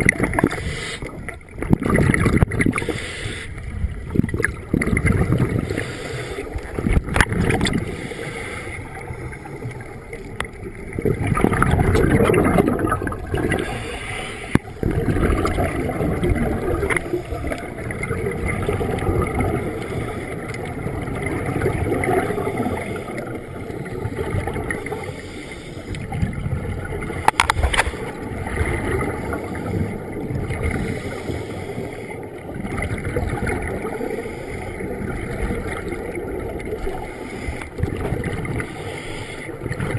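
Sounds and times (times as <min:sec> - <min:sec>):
underwater regulator bubbles gurgling: 0:00.0 - 0:39.9.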